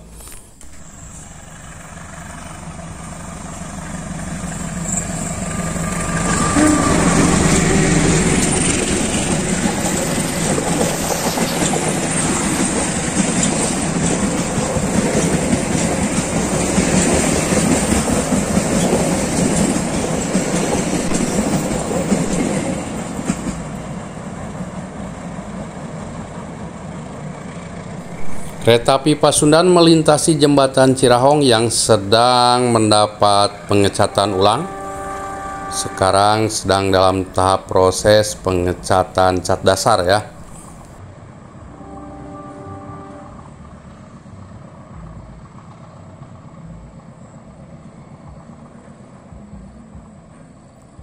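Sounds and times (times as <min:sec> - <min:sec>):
train wheels on rails: 0:00.0 - 0:41.0
diesel locomotive passing: 0:00.0 - 0:51.0.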